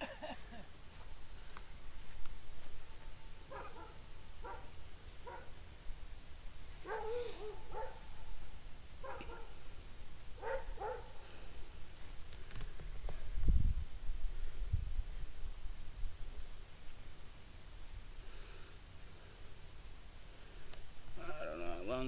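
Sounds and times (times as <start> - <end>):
dog barking: 3.5 - 5.5, 6.8 - 8.3, 9.0 - 9.6, 10.4 - 11.2.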